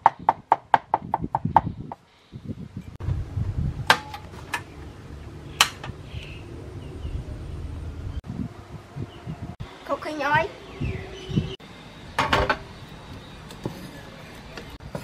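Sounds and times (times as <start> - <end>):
steady low rumble: 2.5 - 13.3.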